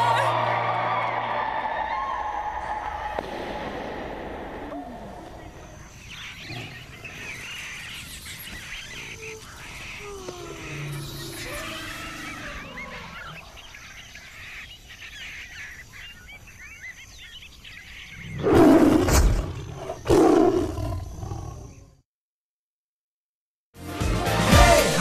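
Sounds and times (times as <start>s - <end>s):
bird chirps: 5.2s - 21.9s
lion roars: 18.4s - 21.8s.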